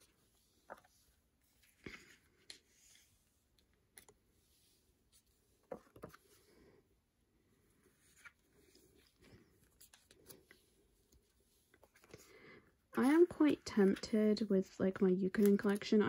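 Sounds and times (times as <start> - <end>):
soft clicks and plastic crinkles: 0.6 - 4.2, 8.1 - 12.3, 13.0 - 16.0.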